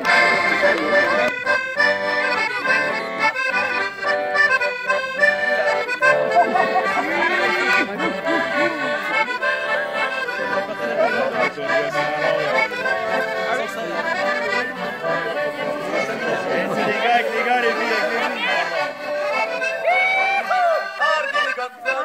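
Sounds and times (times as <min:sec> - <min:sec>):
accordions playing a dance tune: 0:00.0 - 0:22.0.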